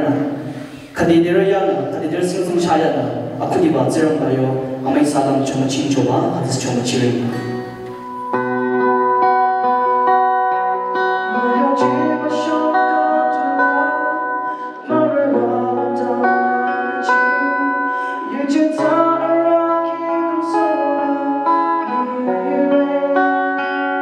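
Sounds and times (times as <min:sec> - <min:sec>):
acoustic guitar strumming: 0:00.0 - 0:24.0
man singing: 0:11.0 - 0:24.0.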